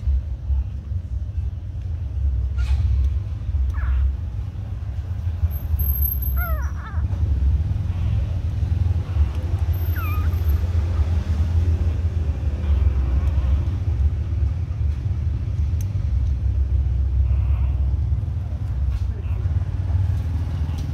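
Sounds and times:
puppies squeaking: 0:05.6 - 0:07.2, 0:09.2 - 0:11.2.

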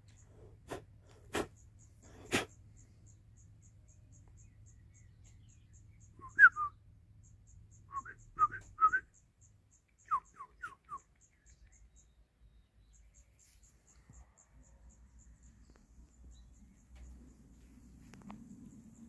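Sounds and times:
short whistled notes: 0:06.2 - 0:06.7, 0:07.9 - 0:09.0.

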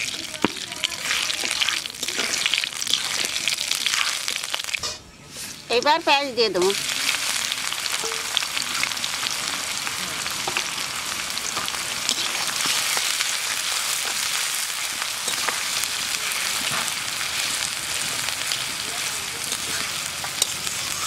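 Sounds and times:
metal spatula stirring: 0:00.0 - 0:06.2, 0:11.6 - 0:21.0
onions sizzling in hot oil: 0:00.0 - 0:21.0.

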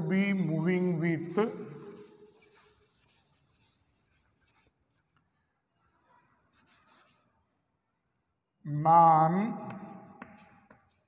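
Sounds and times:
duster rubbing on chalkboard: 0:00.0 - 0:04.8, 0:06.5 - 0:07.3, 0:10.2 - 0:11.0.

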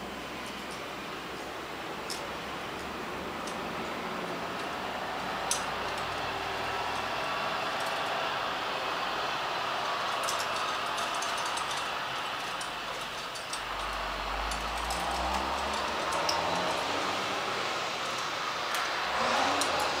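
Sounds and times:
rushing noise: 0:00.9 - 0:20.0
light clicks and clinks: 0:09.8 - 0:20.0.

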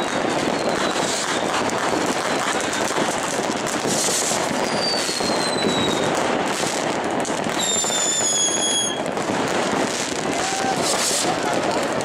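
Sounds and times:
fireworks bangs and crackles: 0:00.0 - 0:12.0
whistling firework: 0:00.0 - 0:12.0.

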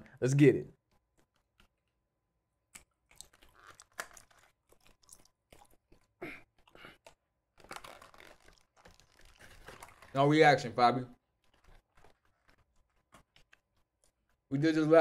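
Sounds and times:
wet mouth chewing clicks: 0:02.7 - 0:07.2.

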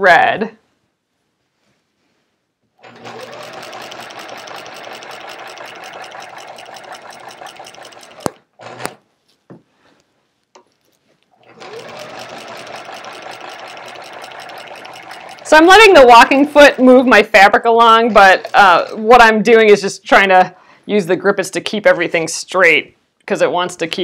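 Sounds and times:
sewing machine clicks: 0:02.8 - 0:09.0, 0:11.4 - 0:15.5
sewing machine stitching: 0:02.8 - 0:09.0, 0:11.3 - 0:17.2, 0:18.2 - 0:19.2.

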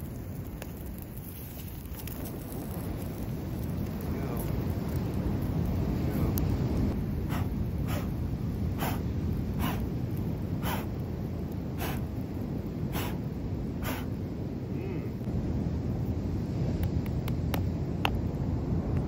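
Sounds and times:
wind on microphone: 0:00.0 - 0:19.0
man blowing on fire: 0:07.1 - 0:12.2, 0:12.8 - 0:15.2.

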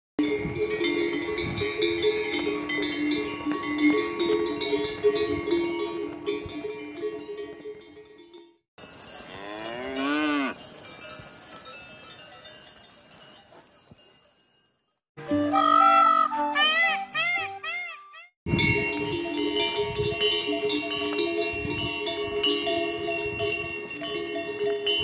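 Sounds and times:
animal bells clanking and ringing: 0:00.2 - 0:15.0, 0:18.5 - 0:25.0
cow mooing: 0:09.2 - 0:10.6.

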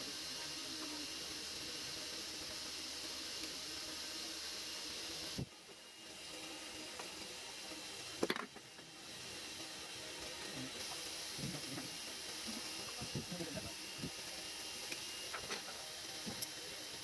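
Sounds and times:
steady hiss: 0:00.0 - 0:17.0.

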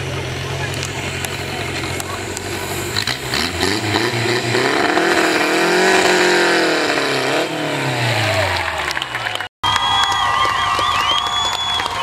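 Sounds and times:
chainsaw engine revving hard: 0:02.4 - 0:09.1.

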